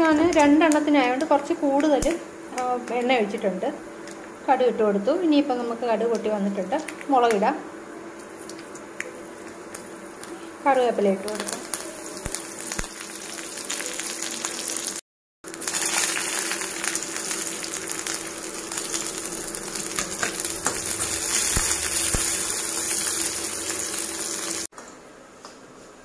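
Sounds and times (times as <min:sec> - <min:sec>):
spices sizzling in hot oil: 0:08.1 - 0:24.7.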